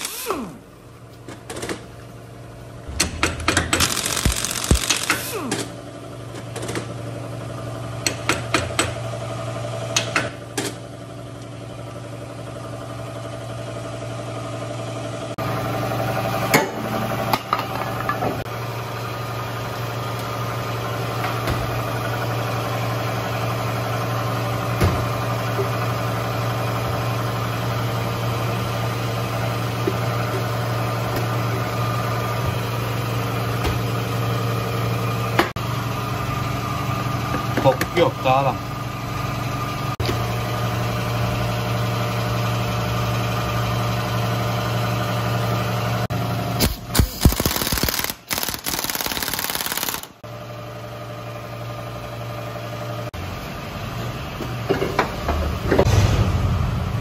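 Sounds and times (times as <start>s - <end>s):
motor humming: 2.9s - 5.8s.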